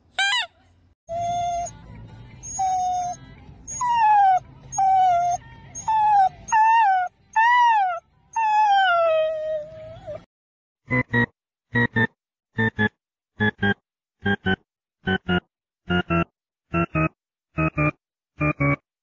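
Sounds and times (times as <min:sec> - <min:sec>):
dog whining and howling: 0:01.1 - 0:01.8, 0:02.4 - 0:10.3.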